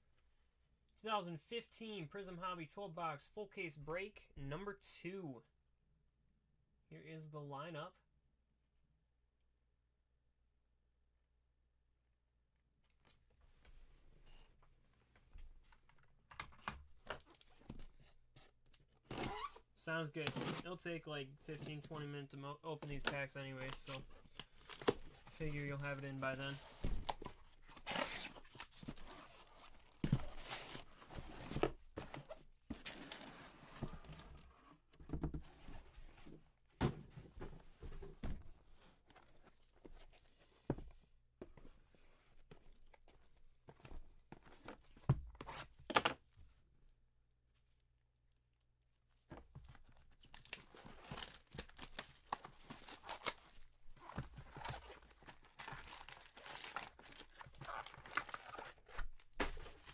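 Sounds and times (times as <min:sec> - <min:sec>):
card packs tearing and crinkling: 0:22.8 - 0:31.7, 0:50.2 - 0:59.9.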